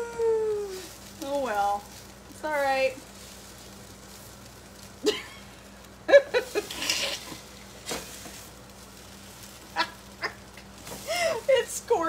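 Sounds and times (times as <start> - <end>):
pancakes sizzling in frying pan: 0.0 - 12.0
spatula scraping pan: 6.4 - 12.0.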